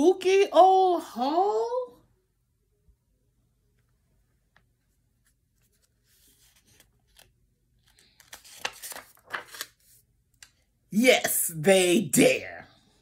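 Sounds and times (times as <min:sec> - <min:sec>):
paper pages rustling: 0:04.6 - 0:10.6.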